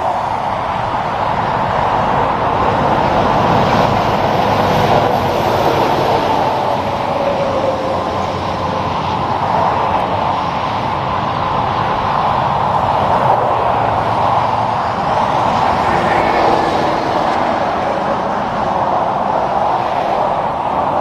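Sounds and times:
trucks passing on highway: 0:00.0 - 0:21.0.

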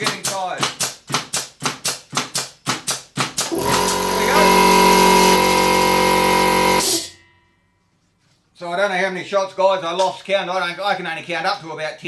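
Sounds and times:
pin nailer firing: 0:00.0 - 0:07.1
air compressor motor whining: 0:03.5 - 0:07.2.

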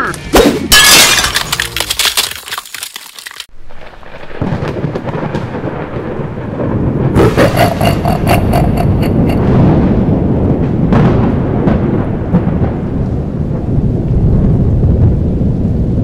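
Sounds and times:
rumble of thunder: 0:03.7 - 0:16.0
sharp thunderclap: 0:03.7 - 0:16.0.

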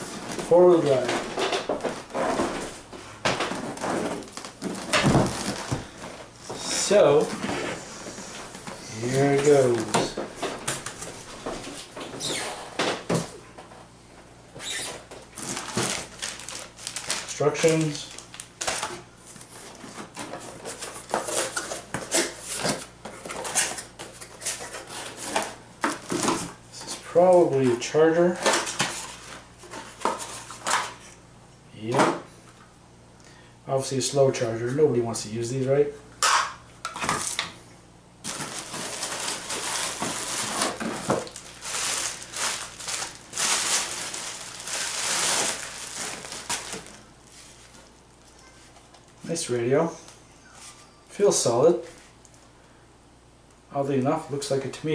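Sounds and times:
bubble wrap crinkling: 0:03.6 - 0:06.1, 0:14.6 - 0:19.9, 0:38.2 - 0:49.2
paper rustling: 0:15.4 - 0:25.5, 0:38.2 - 0:47.9.

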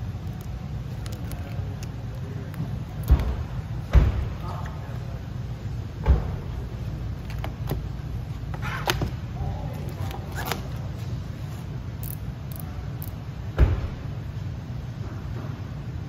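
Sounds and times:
thump: 0:03.1 - 0:04.4, 0:13.6 - 0:14.0.

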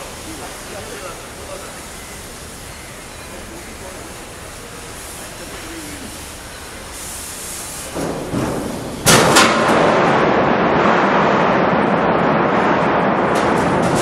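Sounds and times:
sharp bangs: 0:07.9 - 0:14.0.

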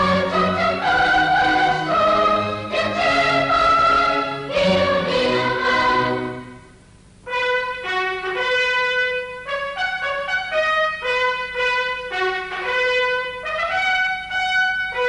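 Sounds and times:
marching song with orchestra: 0:00.0 - 0:06.6
fanfare trumpets signal call: 0:07.3 - 0:15.0.

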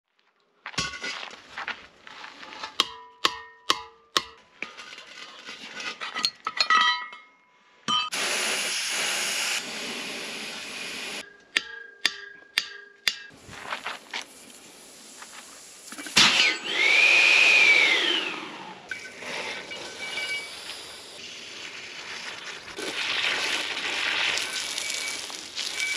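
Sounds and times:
hammer striking metal wrench: 0:02.8 - 0:04.4, 0:06.5 - 0:08.2, 0:11.2 - 0:13.3
loud gas hiss: 0:08.1 - 0:11.2.

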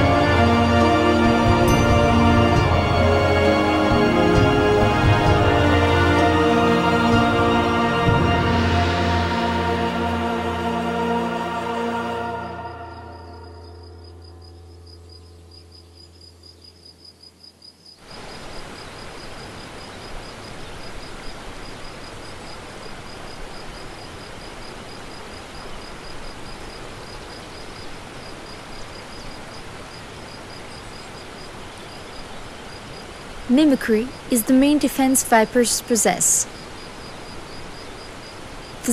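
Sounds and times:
low music drone: 0:00.0 - 0:16.2
insect chirping: 0:12.4 - 0:38.9
rushing outdoor noise: 0:18.0 - 0:38.9.

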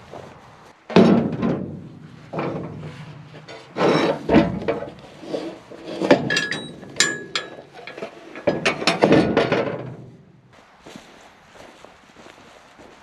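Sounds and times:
metal ramp knocking and clattering: 0:00.9 - 0:10.2.

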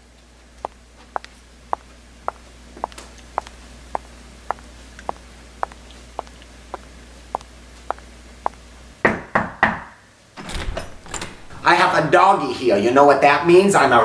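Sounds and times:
footsteps: 0:00.6 - 0:08.6
knocks on a door: 0:09.0 - 0:09.9.

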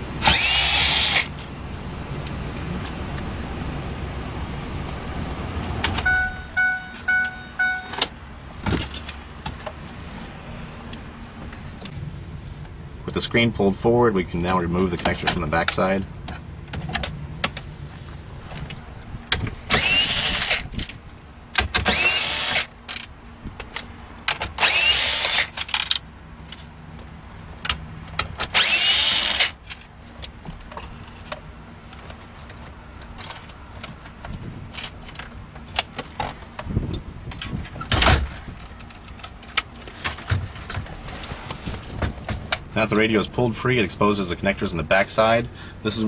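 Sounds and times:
cordless drill running: 0:00.2 - 0:01.3, 0:19.7 - 0:20.6, 0:21.9 - 0:22.7, 0:24.6 - 0:25.5, 0:28.6 - 0:29.5
clicks and knocks of parts: 0:18.5 - 0:42.7.

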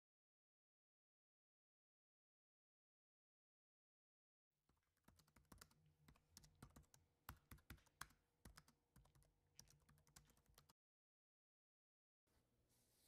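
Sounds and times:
laptop keyboard typing: 0:05.0 - 0:10.7.

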